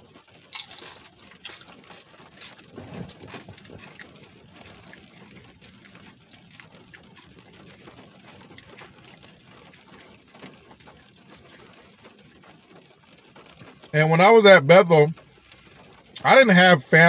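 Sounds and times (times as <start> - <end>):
chewing crispy food: 0.0 - 14.0, 14.6 - 17.0
low steady hum: 0.0 - 17.0.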